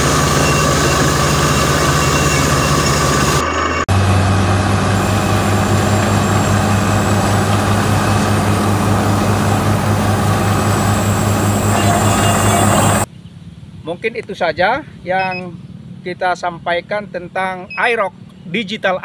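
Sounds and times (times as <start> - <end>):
drilling rig engine running: 0.0 - 13.1, 15.1 - 16.0.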